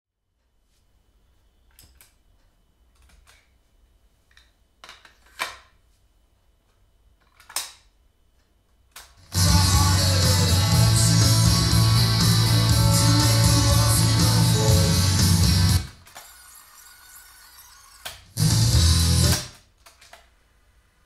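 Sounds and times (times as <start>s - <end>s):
guitar music from tape: 9.3s - 16.0s, 18.4s - 19.5s.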